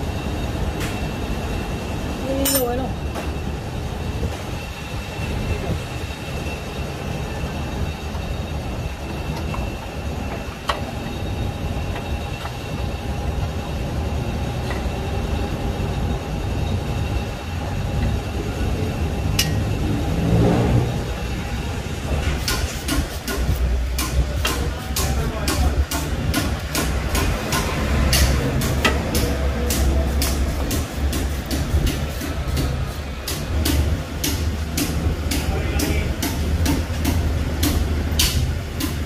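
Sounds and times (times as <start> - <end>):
faint whine: 0.0 - 22.2
low mechanical rumble: 0.0 - 39.0.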